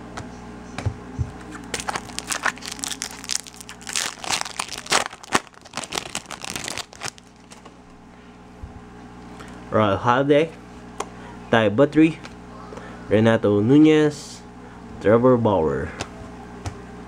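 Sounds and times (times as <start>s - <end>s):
foil wrapper crinkling: 1.6s - 7.8s.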